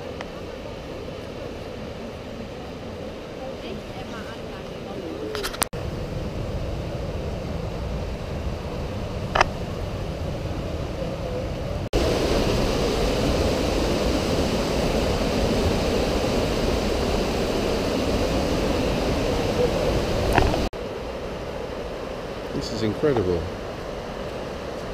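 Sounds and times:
river rushing through gorge: 7.4 - 24.9.

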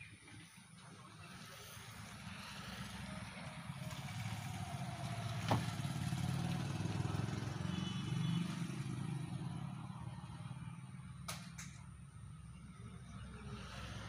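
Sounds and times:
engine rumbling: 0.0 - 14.0.

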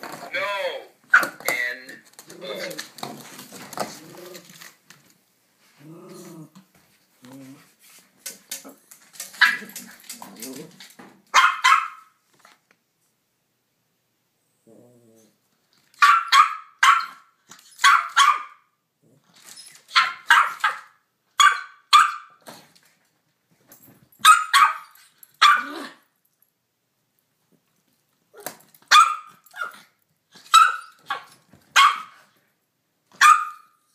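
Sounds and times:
small dog barking: 11.3 - 12.1, 16.0 - 18.7, 19.9 - 22.4, 24.2 - 26.0, 28.9 - 29.9, 30.5 - 32.3, 33.2 - 33.8.

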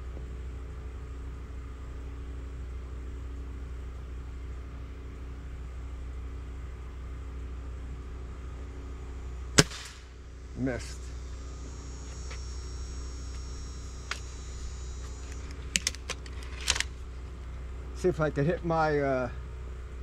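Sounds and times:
low background hum: 0.0 - 20.0
air rifle shot: 9.6 - 10.2.

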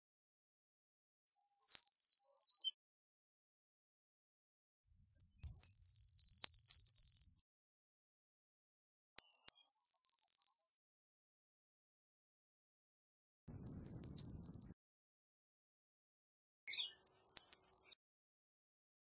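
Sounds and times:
bird singing with trill: 1.3 - 2.8, 4.9 - 7.4, 9.2 - 10.8, 13.5 - 14.8, 16.7 - 18.0.

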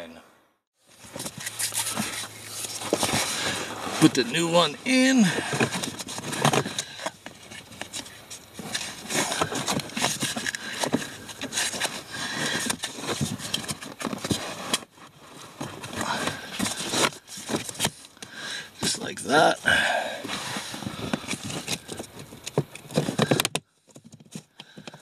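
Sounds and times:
filter scraping against plastic: 1.0 - 19.1, 20.2 - 25.0
plastic clicks and knocks: 21.2 - 25.0.

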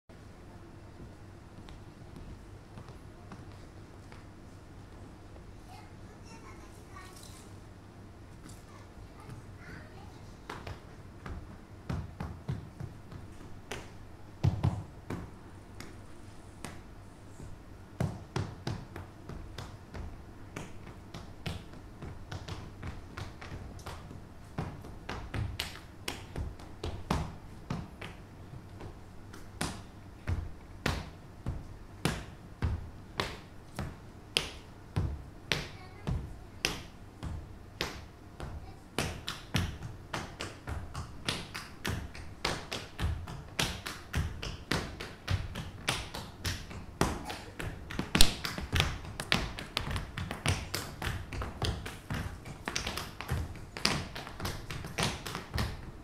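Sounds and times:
tap shoes striking stage floor: 18.0 - 55.9.

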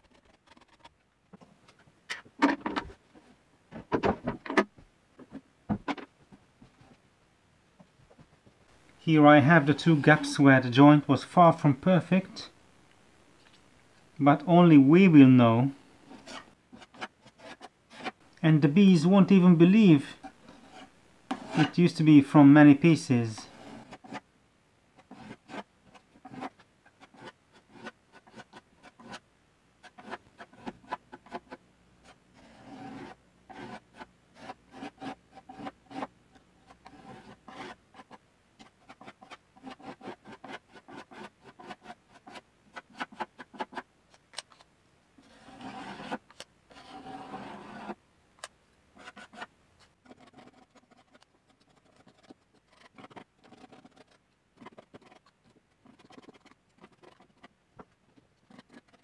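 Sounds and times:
putty knife scraping wood: 20.2 - 21.7, 29.8 - 43.9, 45.2 - 48.0, 49.0 - 57.5, 58.4 - 59.0.

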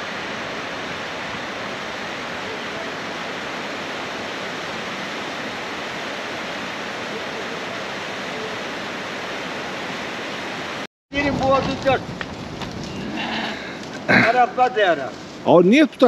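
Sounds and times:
stream rushing over boulders: 0.0 - 15.8.

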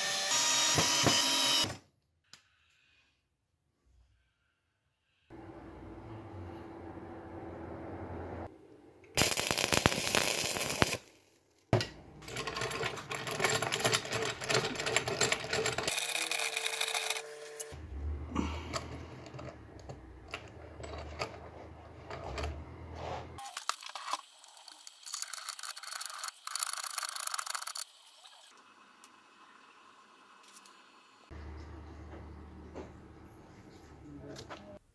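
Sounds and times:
welding crackle: 9.2 - 11.6.

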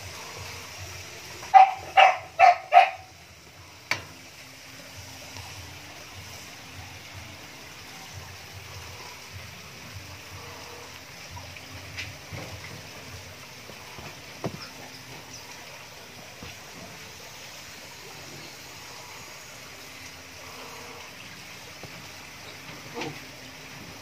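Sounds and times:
steady hiss: 0.0 - 24.0
puppy yapping: 1.5 - 3.1.

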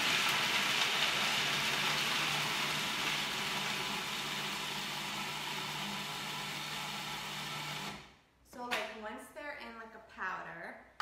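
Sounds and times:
food processor grinding nuts: 0.0 - 8.1.

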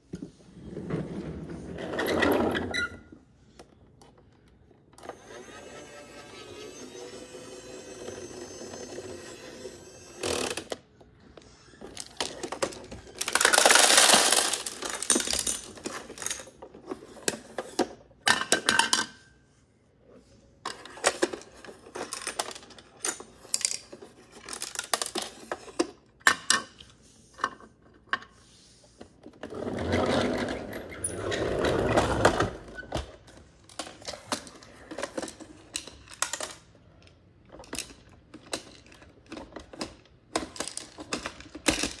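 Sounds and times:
plastic toys clattering on wooden floor: 11.4 - 19.2, 20.7 - 28.4, 29.1 - 42.0.

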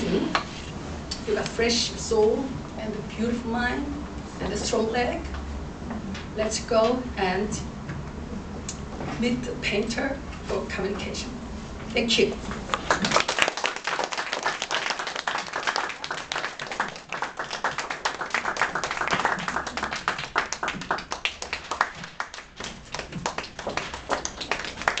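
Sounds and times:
audience applauding: 12.7 - 25.0.

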